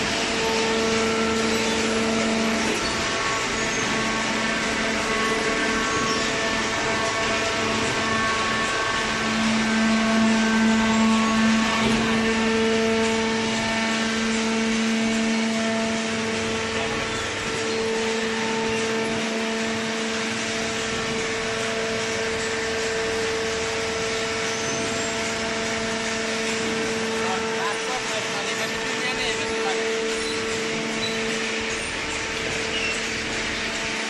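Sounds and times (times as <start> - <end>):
hydraulic baler machine drone: 0.0 - 34.0.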